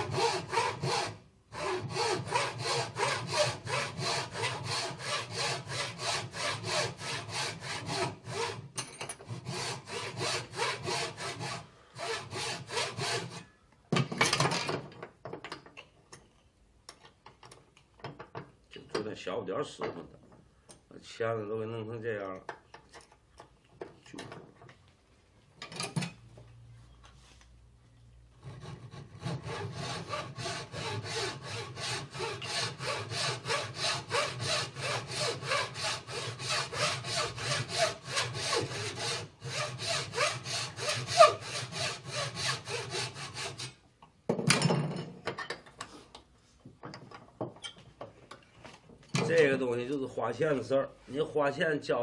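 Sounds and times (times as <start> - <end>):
saw cutting wood: 0.0 - 8.6, 9.2 - 13.4, 28.4 - 43.8
tools knocking: 46.7 - 48.4.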